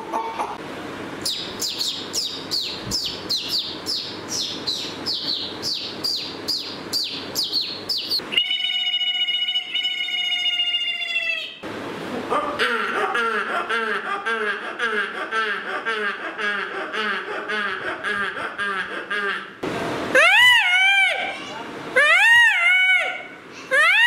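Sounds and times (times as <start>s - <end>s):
man whistling bird calls: 1.3s - 10.4s
man trilling bird call: 3.3s - 11.6s.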